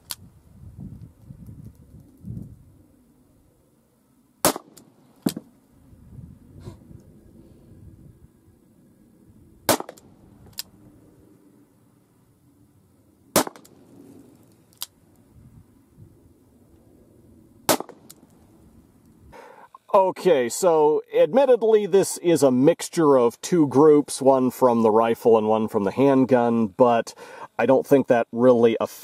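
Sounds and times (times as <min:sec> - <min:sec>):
revolver gunshots: 0:04.4 - 0:05.4, 0:09.7 - 0:10.2, 0:13.3 - 0:14.0, 0:17.7 - 0:18.2.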